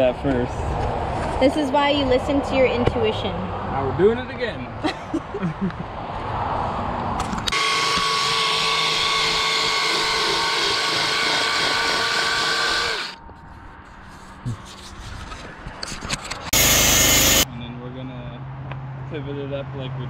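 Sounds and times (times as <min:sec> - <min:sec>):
rotary power tool running: 0:07.5 - 0:13.2, 0:16.5 - 0:17.4.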